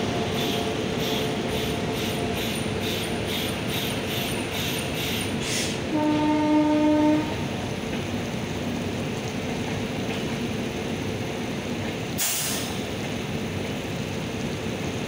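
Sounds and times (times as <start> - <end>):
train rolling with steady rumble: 0.0 - 15.0
air brakes hissing: 0.4 - 5.8, 12.2 - 12.9.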